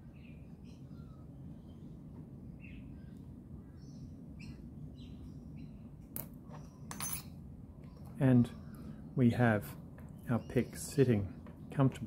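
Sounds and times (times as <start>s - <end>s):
faint bird chirps: 0.0s - 9.4s
low steady hum: 0.0s - 12.0s.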